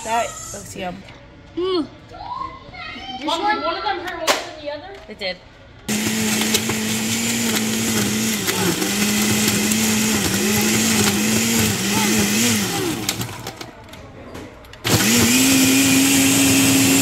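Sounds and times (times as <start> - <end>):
blender motor running: 5.9 - 13.6, 14.9 - 17.0.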